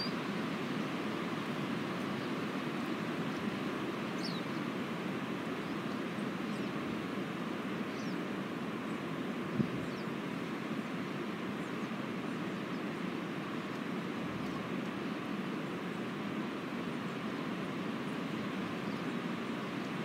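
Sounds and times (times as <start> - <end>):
faint bird chirps: 0.0 - 0.2, 4.2 - 4.7, 7.8 - 8.2, 9.6 - 10.2, 18.1 - 20.0
wind rushing through trees: 0.0 - 20.0.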